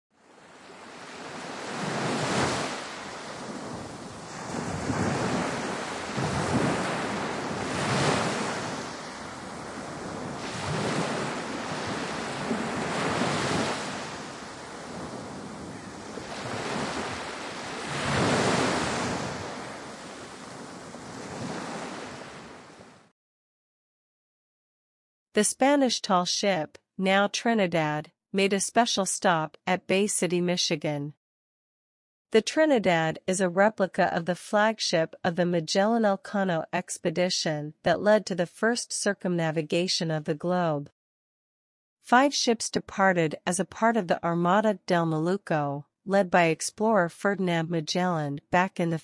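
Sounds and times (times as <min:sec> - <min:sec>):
ocean waves washing: 0:00.2 - 0:23.1.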